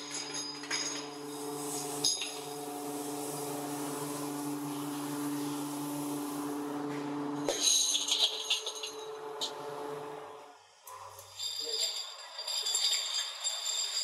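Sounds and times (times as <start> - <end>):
machine humming: 0.8 - 7.5, 8.2 - 10.6.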